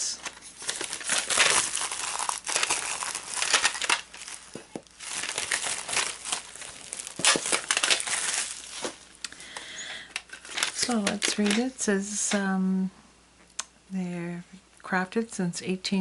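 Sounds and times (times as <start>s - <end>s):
plastic shrink-wrap crinkling: 0.0s - 11.8s.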